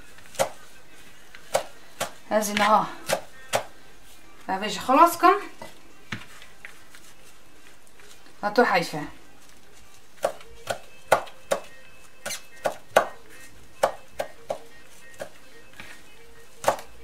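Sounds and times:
knife chopping on cutting board: 0:00.3 - 0:00.6, 0:01.5 - 0:03.7, 0:10.2 - 0:13.2, 0:13.8 - 0:15.4, 0:16.6 - 0:16.9.

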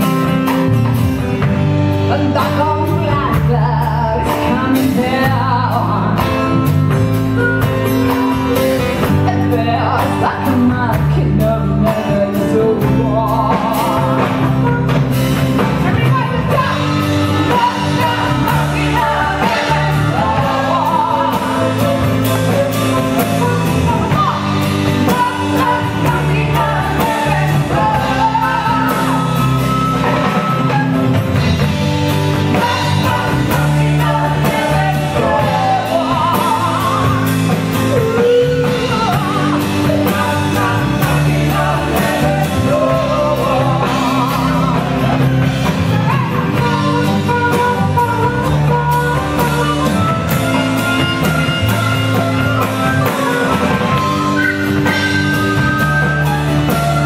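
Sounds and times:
acoustic guitar: 0:00.0 - 0:57.0
drums: 0:00.0 - 0:57.0
woman singing lead: 0:00.0 - 0:57.0
harmonica: 0:46.0 - 0:57.0.

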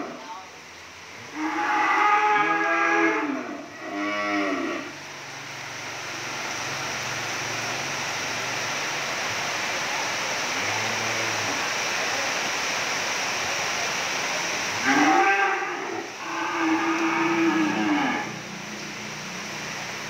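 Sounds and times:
cattle mooing: 0:01.3 - 0:05.0, 0:14.8 - 0:18.4.

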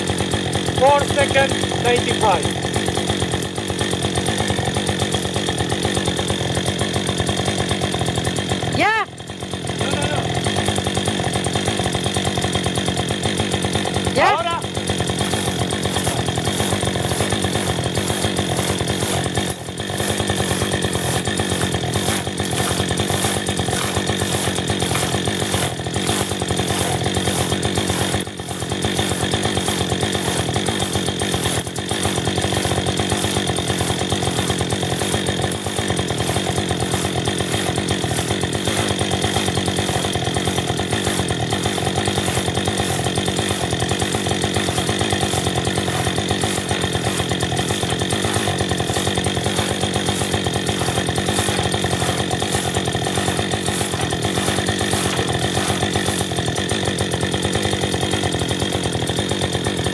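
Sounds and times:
crosscut saw rasping through log: 0:00.0 - 0:59.9.

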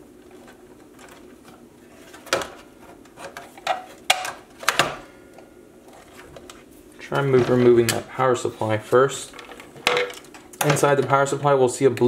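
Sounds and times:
clicks and knocks of computer parts: 0:00.3 - 0:05.1, 0:09.3 - 0:11.3.

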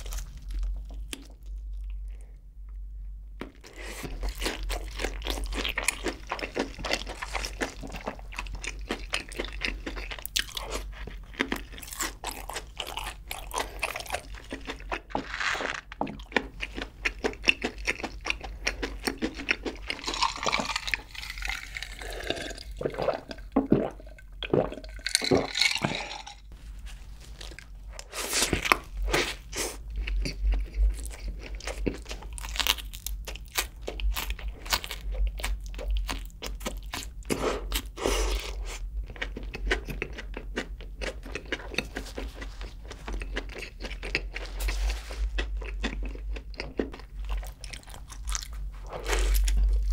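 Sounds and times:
crunching and chewing: 0:00.0 - 0:02.4, 0:03.4 - 0:49.9
wet mouth sounds: 0:19.4 - 0:26.5.

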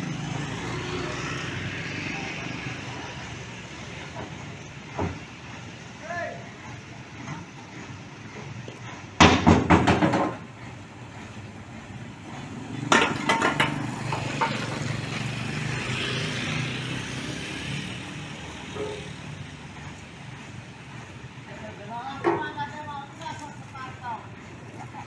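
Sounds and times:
motor scooter passing: 0:00.0 - 0:03.7, 0:12.2 - 0:20.1
engine humming: 0:00.0 - 0:25.0
metal loading ramps clanking: 0:12.3 - 0:15.0.

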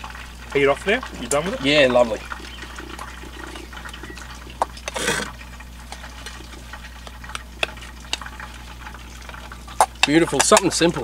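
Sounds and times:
steady low hum: 0:00.0 - 0:11.0
utensil scraping frying pan: 0:04.8 - 0:08.5.

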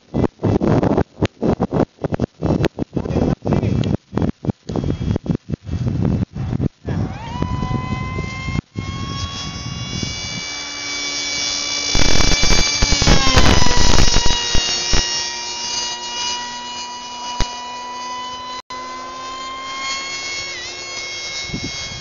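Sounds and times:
electric motor propeller whine: 0:03.6 - 0:22.0
loud rush of noise: 0:11.9 - 0:14.9.

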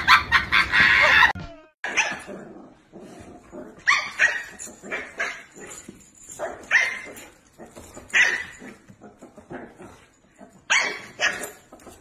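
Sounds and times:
dog yapping: 0:00.0 - 0:02.3, 0:10.7 - 0:11.6.

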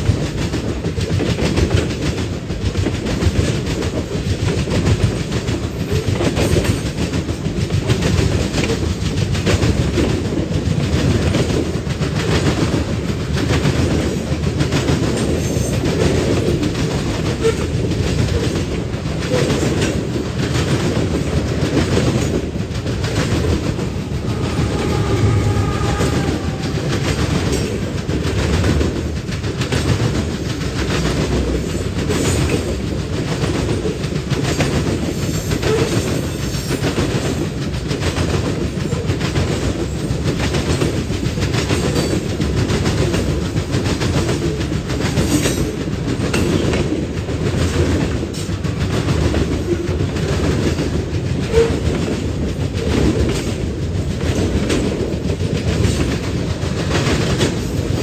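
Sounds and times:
clickety-clack of train wheels: 0:00.0 - 0:58.0
freight train rumbling past: 0:00.0 - 0:58.0.

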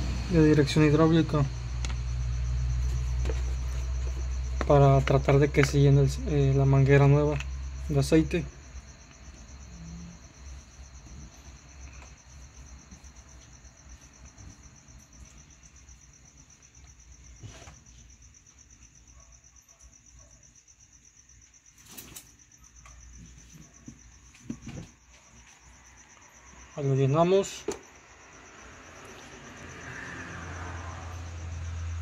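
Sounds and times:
cricket chirring: 0:00.0 - 0:32.0.

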